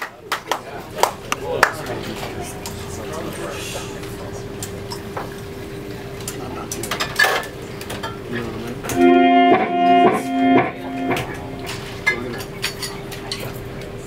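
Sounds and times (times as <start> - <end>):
electric guitar chords: 8.9 - 12.0
rock band holding a note: 9.0 - 12.0
dishes and cutlery clinking: 11.0 - 13.6.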